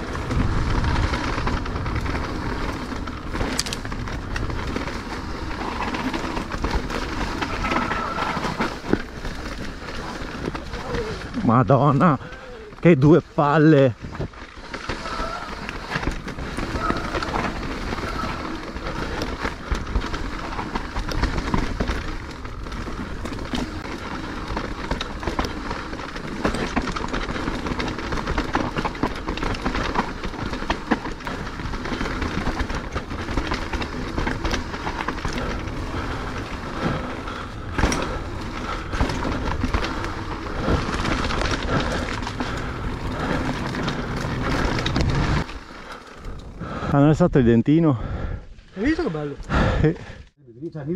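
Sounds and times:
bike tyre noise: 0.0s - 50.4s
bike rattling: 0.0s - 50.9s
bike knocking on rocks: 11.9s - 45.5s.

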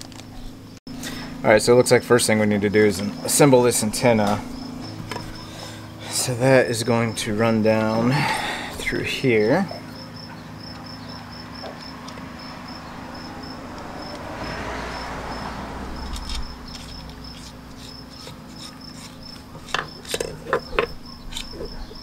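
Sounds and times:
cricket chirping: 2.8s - 22.0s
knocks and clicks of handling: 19.6s - 21.6s.

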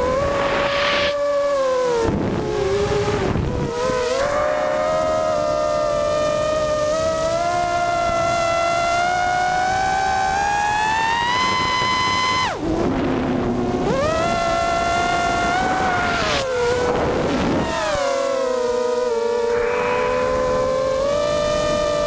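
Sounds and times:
rush of noise: 0.0s - 1.4s, 3.4s - 7.4s, 12.8s - 22.0s
quadcopter motors whining: 0.0s - 22.0s.

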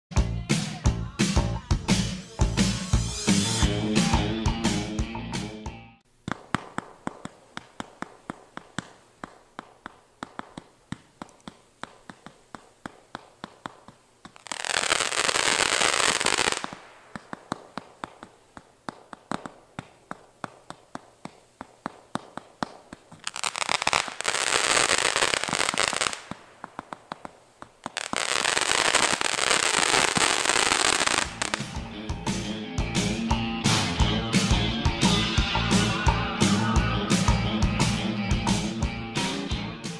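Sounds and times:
firework crackling: 6.2s - 31.8s
firework shots popping: 6.2s - 31.8s.

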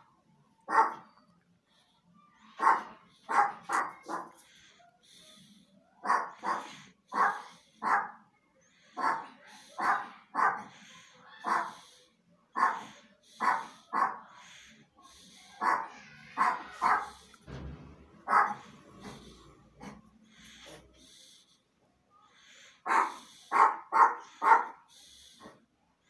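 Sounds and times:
dog barking: 0.7s - 1.2s, 2.4s - 4.6s, 6.0s - 8.2s, 8.9s - 11.9s, 12.5s - 14.5s, 15.6s - 17.2s, 18.2s - 19.2s, 22.8s - 24.8s.

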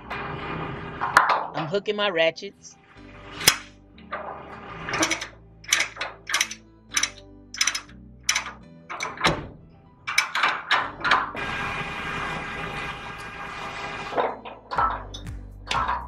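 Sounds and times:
ratchet binder clanking: 4.9s - 11.4s, 14.1s - 16.0s.

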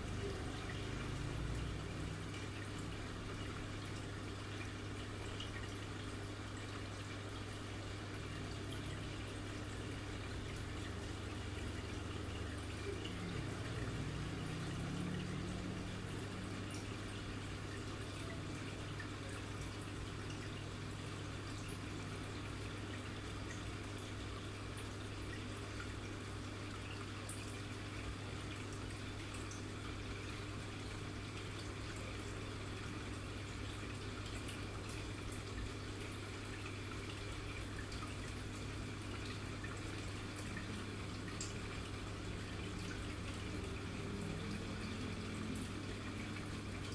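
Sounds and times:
low electrical hum: 0.0s - 46.9s
water trickling and dripping: 0.0s - 46.9s.

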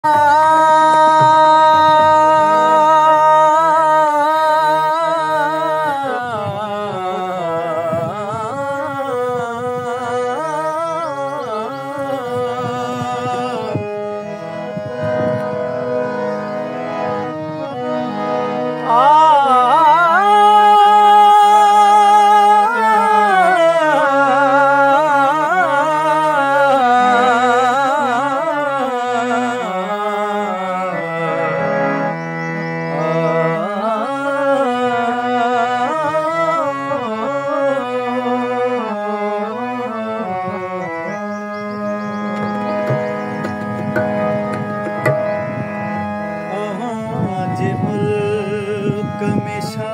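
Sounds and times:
harmonium drone: 0.0s - 49.9s
man singing held notes: 0.1s - 14.0s, 46.5s - 49.9s.

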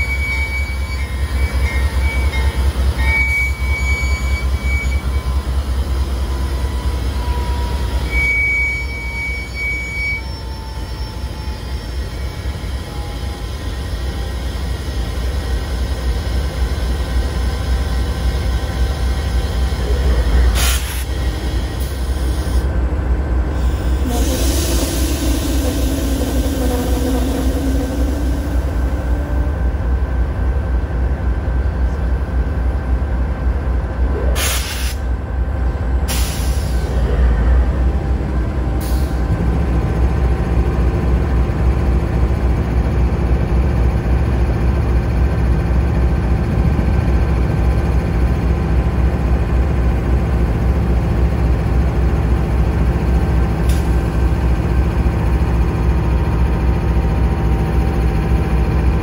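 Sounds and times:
diesel locomotive rumbling: 0.0s - 59.0s
short air hisses: 20.6s - 22.6s, 34.4s - 35.1s, 36.1s - 36.9s.

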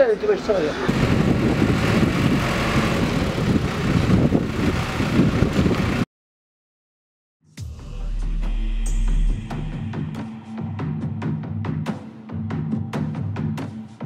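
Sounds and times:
tractor engine running: 0.9s - 6.0s
music: 7.4s - 14.0s.

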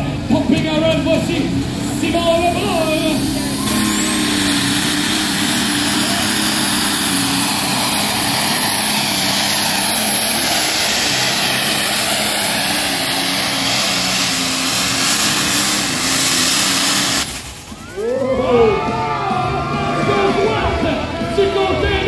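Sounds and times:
diesel tractor engine at full throttle: 0.0s - 22.0s.

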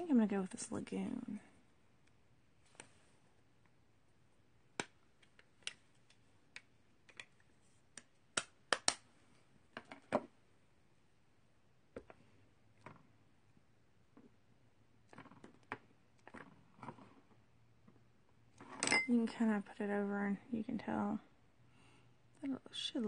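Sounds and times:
plastic pieces clicking on table: 4.8s - 9.0s.

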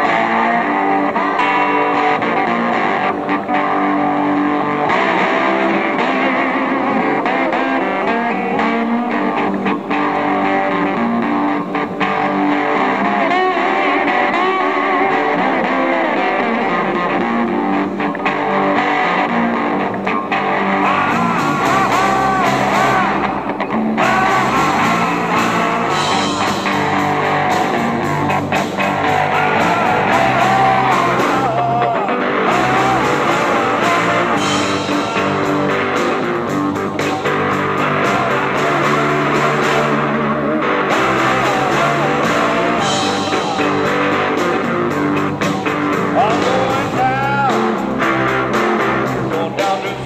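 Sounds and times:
bass guitar: 0.0s - 50.0s
electric guitar: 0.0s - 50.0s
man singing: 20.8s - 23.4s, 24.0s - 27.0s, 29.0s - 36.5s, 41.0s - 44.9s, 46.0s - 50.0s.

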